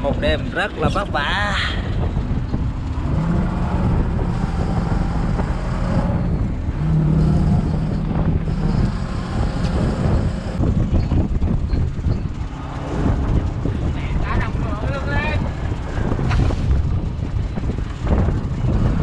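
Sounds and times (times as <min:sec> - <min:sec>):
boat engine running: 0:00.0 - 0:19.0
held hum: 0:01.5 - 0:14.7.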